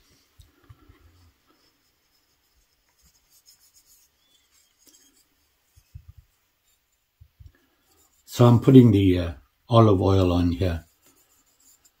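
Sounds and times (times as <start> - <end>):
fingers rubbing wooden spatula: 0.8 - 7.2, 7.8 - 8.8, 10.5 - 12.0
soft handling bumps: 5.7 - 7.5.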